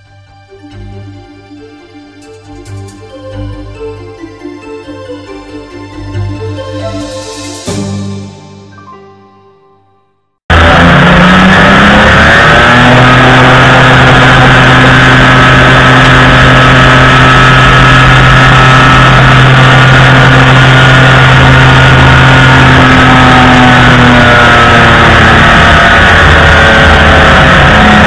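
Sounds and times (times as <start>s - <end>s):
two-stroke engine and propeller: 10.5s - 28.0s.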